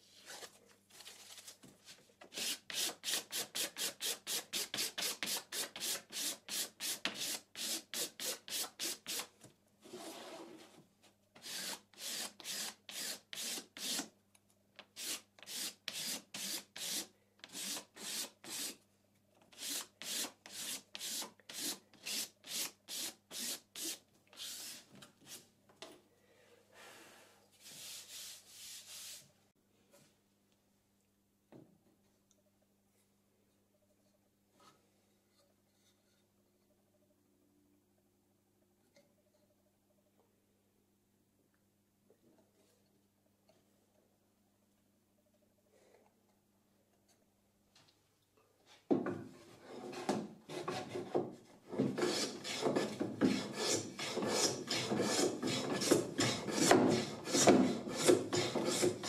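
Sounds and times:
sandpaper sanding wood: 11.4s - 14.0s, 15.0s - 18.8s, 19.6s - 24.8s, 52.0s - 59.0s.

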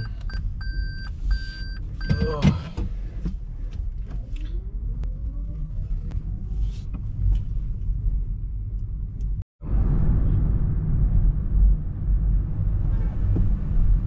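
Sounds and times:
car engine from inside cabin: 0.0s - 9.4s
road rumble: 0.0s - 14.0s.

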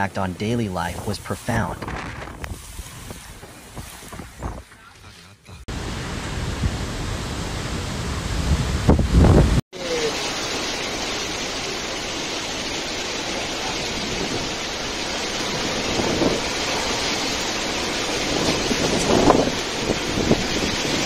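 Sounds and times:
wind buffeting microphone: 0.9s - 5.1s, 5.8s - 9.6s, 13.4s - 21.0s
heavy rain on pavement: 5.7s - 21.0s.

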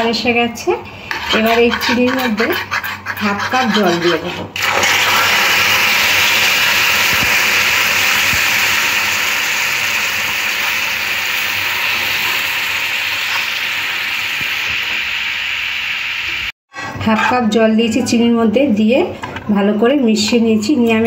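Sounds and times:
hot sugar sizzling: 4.6s - 16.5s.

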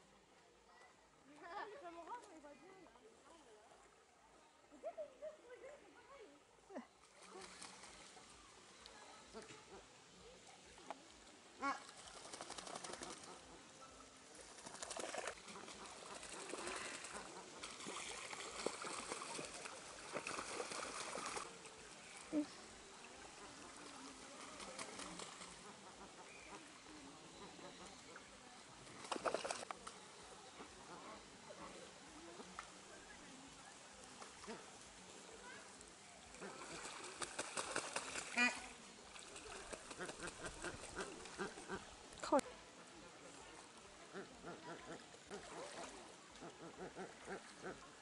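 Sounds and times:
geese splashing water: 7.0s - 48.0s
wings beating on water: 11.6s - 13.4s, 14.5s - 21.5s, 29.0s - 29.8s, 36.3s - 41.8s.

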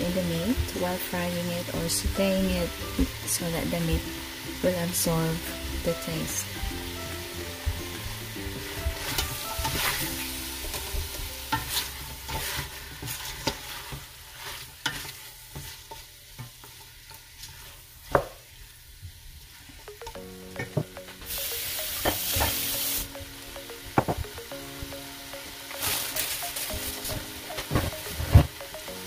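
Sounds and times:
meat sizzling: 0.0s - 29.0s
wooden spoon scraping a pot: 10.7s - 17.9s.

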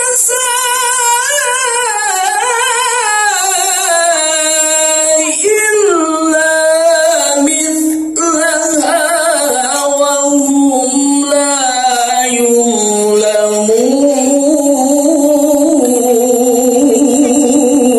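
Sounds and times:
woman singing with vibrato: 0.0s - 17.9s.

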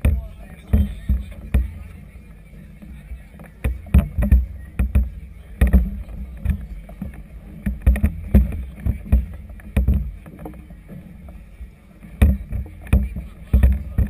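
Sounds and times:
water slapping against a hull: 3.4s - 10.7s.

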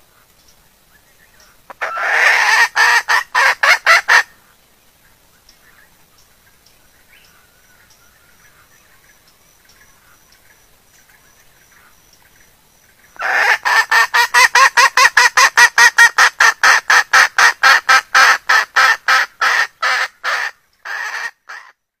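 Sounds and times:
hen giving rapid cackling call: 1.7s - 4.4s, 13.2s - 21.8s.

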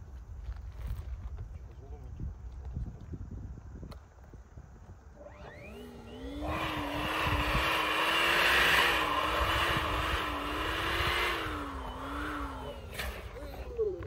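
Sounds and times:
low wavering whine: 5.0s - 14.0s.

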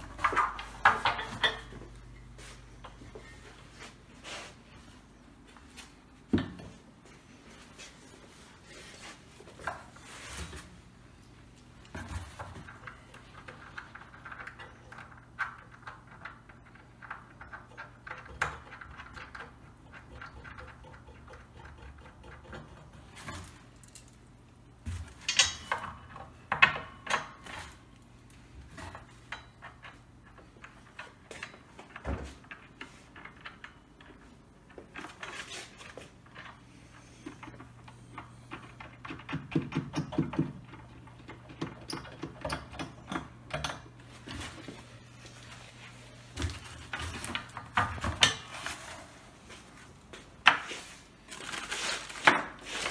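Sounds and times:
metal clinks and knocks: 23.2s - 24.4s.

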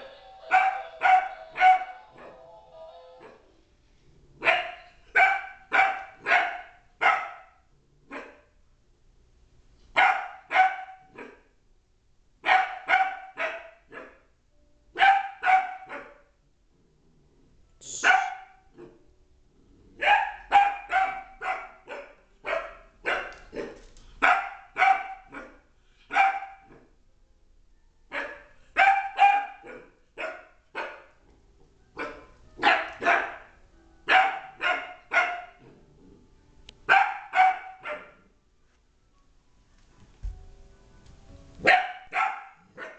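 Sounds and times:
puppy barking: 0.4s - 2.5s, 3.2s - 3.5s, 4.4s - 8.5s, 9.9s - 11.5s, 12.4s - 14.3s, 15.0s - 16.4s, 17.9s - 19.0s, 20.0s - 26.9s, 28.1s - 31.2s, 32.0s - 35.7s, 36.9s - 38.3s, 41.6s - 42.9s.

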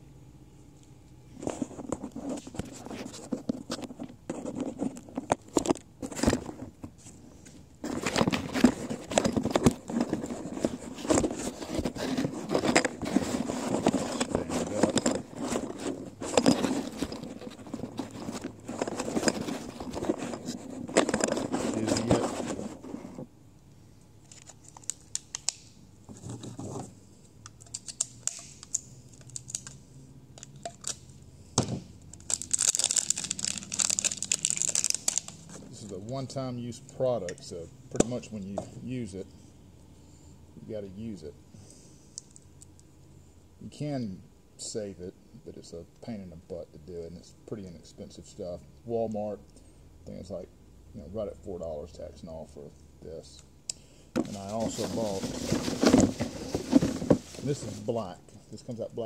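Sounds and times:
plastic crinkling and rustling: 32.2s - 36.0s, 54.2s - 58.2s.

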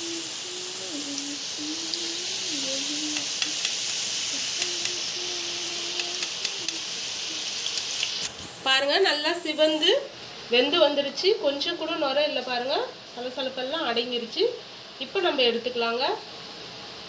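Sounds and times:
batter sizzling in hot oil: 0.0s - 11.6s.

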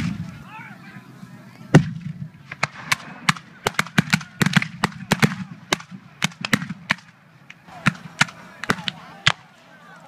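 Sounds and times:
musket shots volley: 1.7s - 9.5s.

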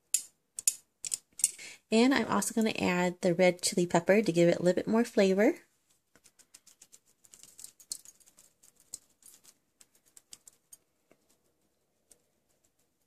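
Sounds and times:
shaker pattering fine ticks: 5.9s - 13.0s.

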